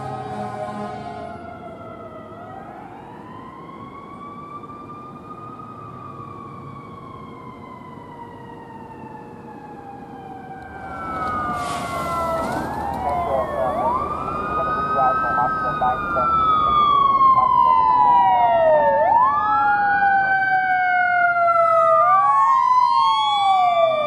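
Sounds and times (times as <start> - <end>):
emergency vehicle siren wailing: 0.0 - 24.0
road noise: 0.0 - 24.0.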